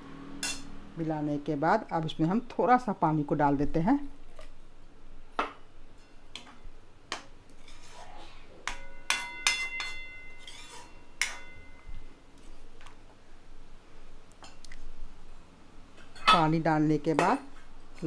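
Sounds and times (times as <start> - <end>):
spoon scraping metal pan: 7.6 - 8.1, 8.7 - 11.5.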